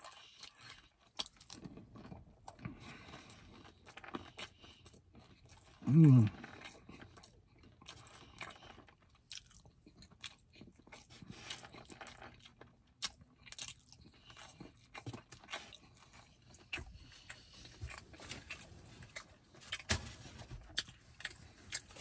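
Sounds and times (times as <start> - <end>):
person chewing: 0.0 - 22.0.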